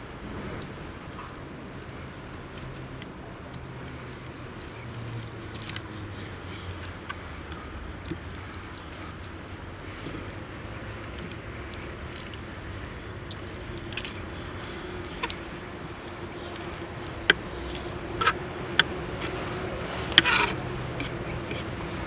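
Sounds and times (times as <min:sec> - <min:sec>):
rustling scrape: 0:14.0 - 0:22.0.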